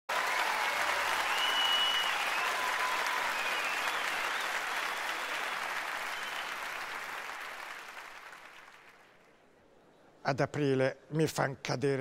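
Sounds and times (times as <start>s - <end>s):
audience applauding: 0.1s - 9.2s.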